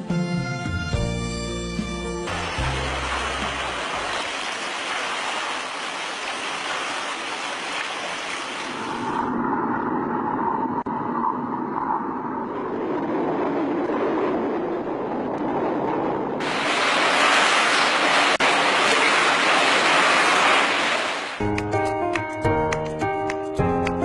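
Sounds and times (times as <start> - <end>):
hot tub water churning: 2.3 - 9.2, 16.4 - 21.4.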